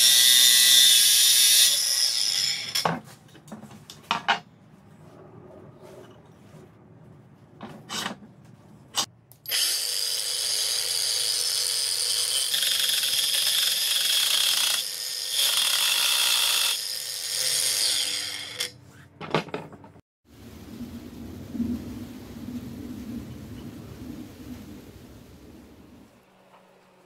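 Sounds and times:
angle grinder cutting steel: 0.0s - 2.8s, 9.0s - 18.8s.

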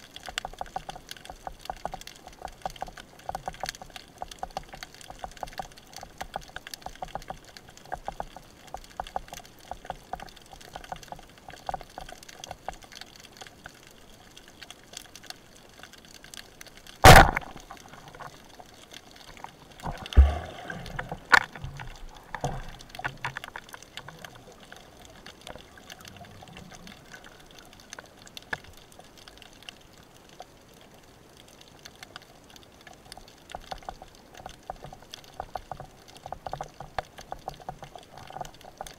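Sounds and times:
underwater crackling ticks: 0.0s - 38.9s
speargun firing crack: 17.0s - 17.6s
noisy burst with low thump: 19.8s - 21.8s.

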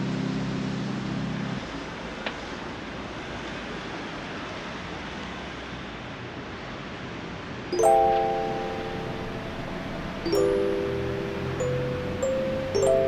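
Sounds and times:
distant road traffic hiss: 0.0s - 13.0s
keyboard chords music: 7.8s - 13.0s.

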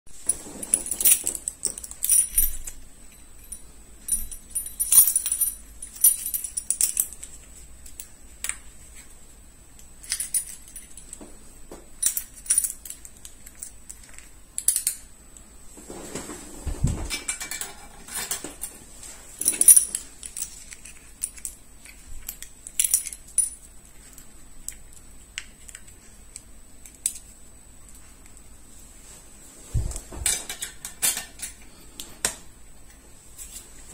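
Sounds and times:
small metal parts tapping: 0.7s - 8.6s, 9.8s - 11.2s, 12.0s - 15.1s, 19.4s - 27.3s.

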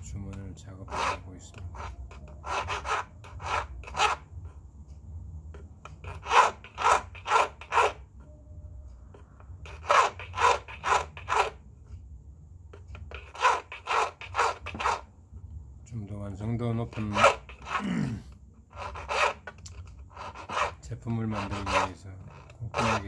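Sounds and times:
file scraping metal ring: 0.0s - 4.5s, 5.5s - 8.3s, 9.1s - 11.6s, 12.7s - 15.1s, 16.6s - 17.8s, 18.6s - 23.0s.

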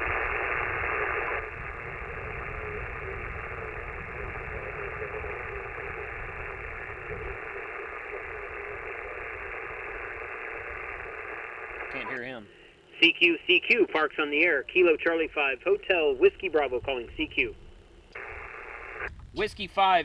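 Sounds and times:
low rumble: 0.0s - 11.1s
radio static hiss: 0.0s - 20.0s.

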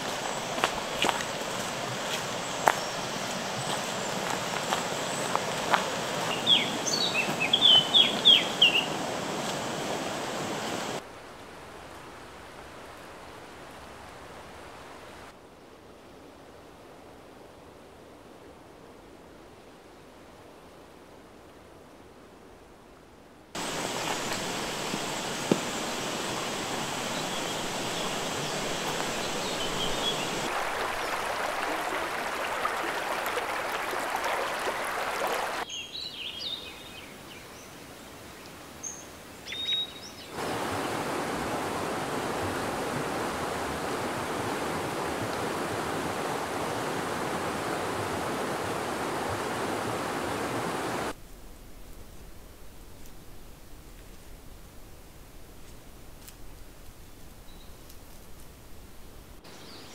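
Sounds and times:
river water rushing: 0.0s - 15.4s, 23.6s - 35.7s, 40.3s - 51.2s
short high bird calls: 6.3s - 9.0s.

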